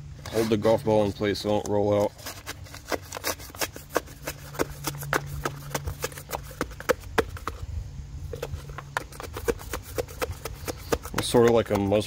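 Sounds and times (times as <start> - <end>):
rod knocking in cardboard tube: 2.9 - 7.6, 8.3 - 12.0.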